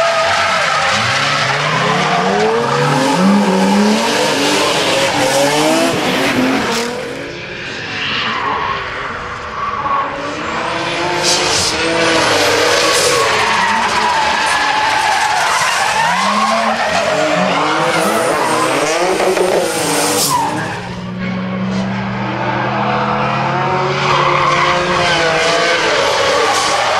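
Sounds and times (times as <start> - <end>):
car engines revving: 0.0 - 26.9.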